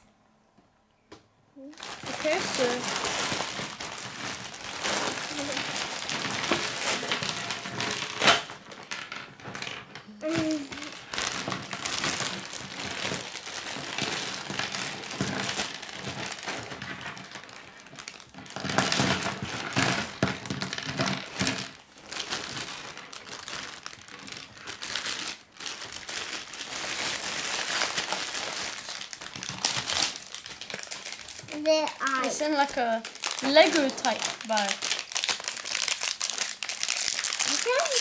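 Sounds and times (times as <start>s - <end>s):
plastic bag crinkling: 1.6s - 38.0s
plastic pieces clattering on wood: 1.8s - 38.0s.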